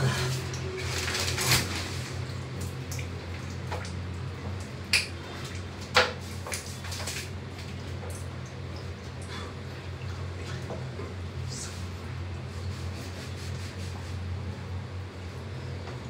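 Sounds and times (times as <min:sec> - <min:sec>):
steady low hum: 0:00.0 - 0:16.0
shower curtain scraping along rail: 0:00.8 - 0:02.2
water drips: 0:02.2 - 0:11.0.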